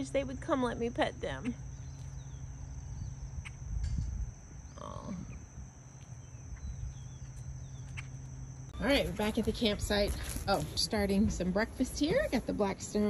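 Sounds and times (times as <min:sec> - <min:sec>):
high insect trill: 0:00.0 - 0:13.0
wind rumble on microphone: 0:02.3 - 0:08.1, 0:08.8 - 0:13.0.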